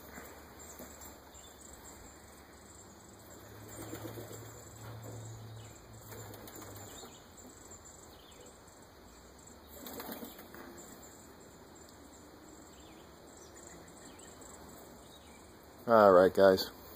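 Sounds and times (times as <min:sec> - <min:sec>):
pigeon wingbeats: 0:03.4 - 0:05.1, 0:06.0 - 0:07.2, 0:09.7 - 0:10.8.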